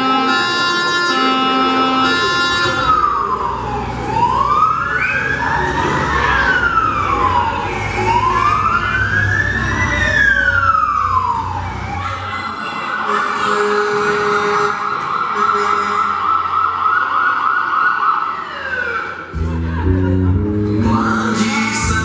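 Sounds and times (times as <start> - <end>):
fire engine siren wailing: 0.0 - 20.1
low engine rumble: 19.4 - 22.0.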